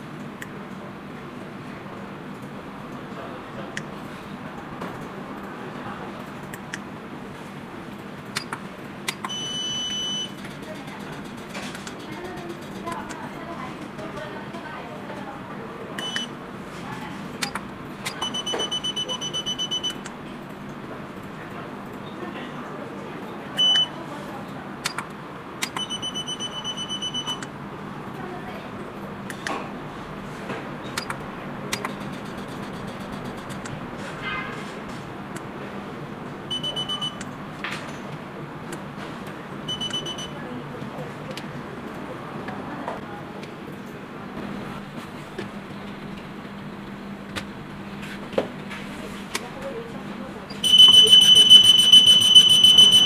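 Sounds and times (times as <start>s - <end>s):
pager beeping: 9.2s - 10.4s, 16.0s - 16.3s, 18.1s - 20.1s, 23.6s - 24.0s, 25.7s - 27.5s, 36.5s - 37.2s, 39.7s - 40.4s, 50.6s - 53.0s
buttons clicking: 24.8s - 26.0s.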